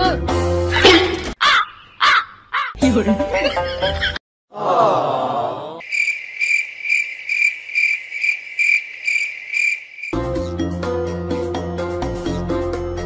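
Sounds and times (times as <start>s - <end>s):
upbeat plucked music: 2.8s - 4.2s
cricket chirping: 5.8s - 10.2s.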